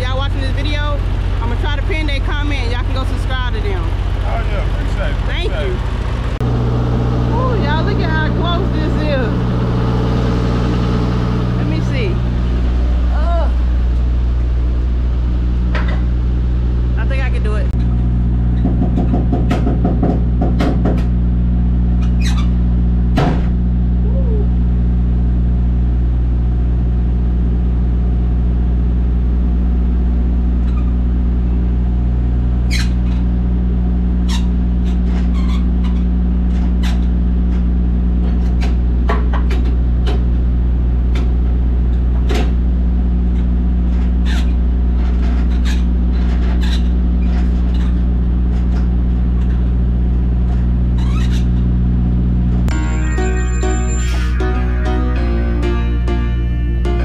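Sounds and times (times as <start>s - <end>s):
diesel truck engine idling: 0.0s - 36.4s.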